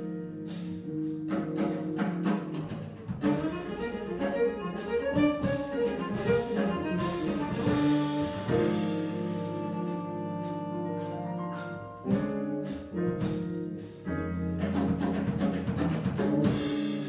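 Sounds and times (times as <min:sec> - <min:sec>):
bass guitar: 0:00.0 - 0:17.0
drums: 0:00.0 - 0:17.0
piano: 0:00.0 - 0:17.0
violin melody: 0:03.2 - 0:12.4.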